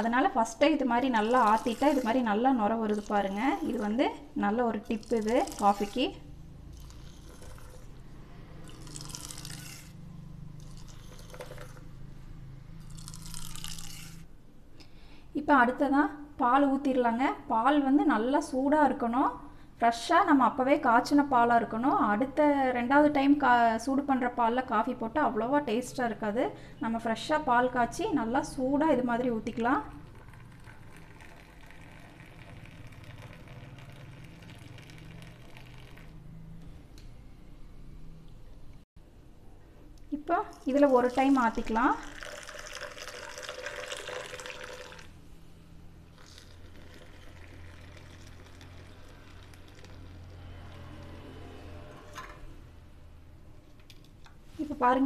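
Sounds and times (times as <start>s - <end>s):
coffee pouring and splashing: 1.0s - 8.0s, 10.6s - 11.9s, 12.9s - 14.2s, 30.0s - 36.2s, 40.5s - 45.2s, 46.1s - 51.2s.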